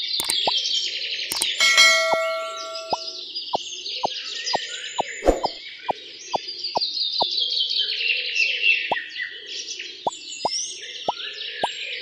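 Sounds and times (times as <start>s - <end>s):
birds chirping: 0.0s - 0.6s, 1.3s - 3.2s.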